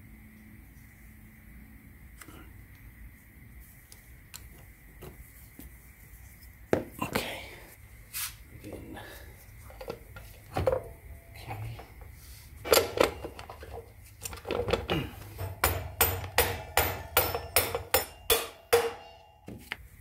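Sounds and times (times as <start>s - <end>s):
metal clinks and knocks: 12.6s - 19.6s
rubber mallet striking axle: 15.3s - 19.6s.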